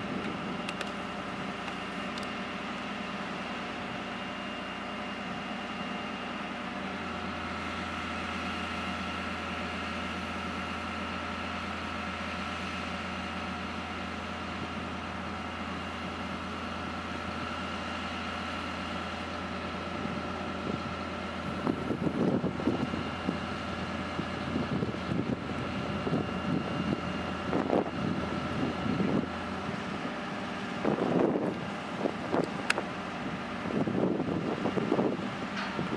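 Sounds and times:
machine engine humming: 0.0s - 35.9s
wind buffeting microphone: 20.0s - 35.9s.

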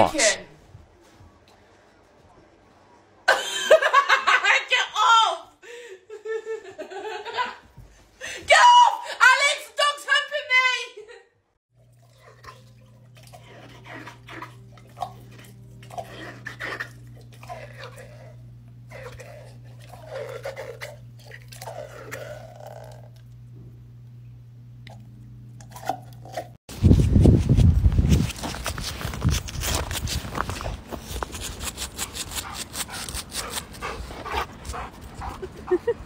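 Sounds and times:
low hum: 11.9s - 36.0s
dog chewing: 12.0s - 23.4s, 28.3s - 35.5s
crunching of snow: 26.7s - 34.6s.

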